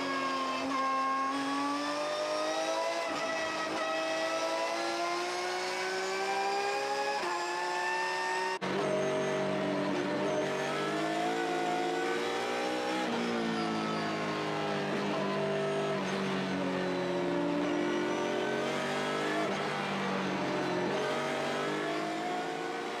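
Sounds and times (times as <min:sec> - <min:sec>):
race car engine revving: 0:00.1 - 0:23.0.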